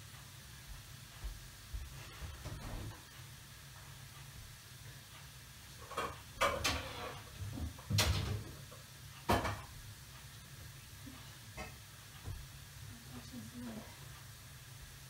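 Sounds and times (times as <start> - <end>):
dishes clattering: 9.3 - 9.7.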